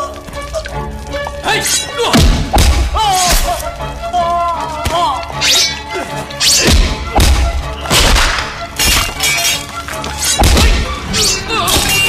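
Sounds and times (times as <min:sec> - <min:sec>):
action film music: 0:00.0 - 0:12.0
punches and crashes: 0:02.1 - 0:03.6, 0:06.4 - 0:11.1.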